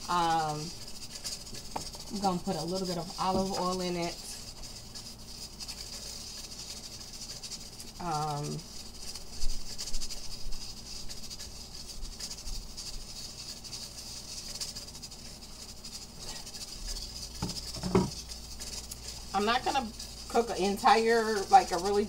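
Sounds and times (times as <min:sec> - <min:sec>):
pressure cooker steam hiss: 0:00.0 - 0:22.0.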